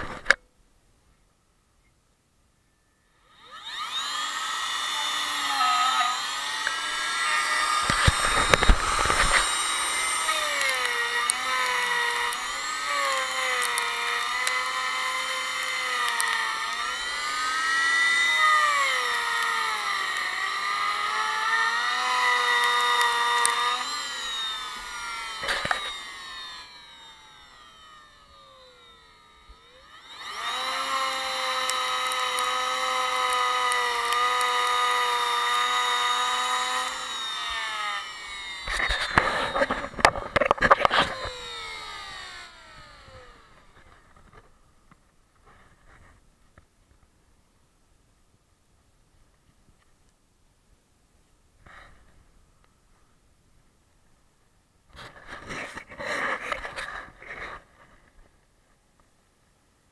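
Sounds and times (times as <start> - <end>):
router motor whine: 2.7 - 44.6
gritty crackles of bit cutting: 3.3 - 44.5.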